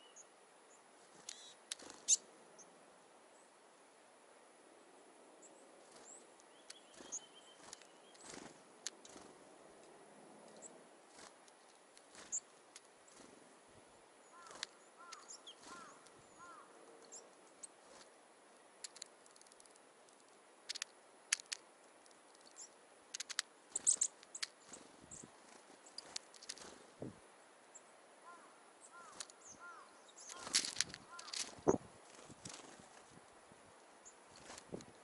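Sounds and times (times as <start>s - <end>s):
small birds chirping: 0.0s - 3.6s, 4.9s - 33.2s, 33.8s - 35.0s
sharp clicks: 14.4s - 15.9s, 18.8s - 24.6s.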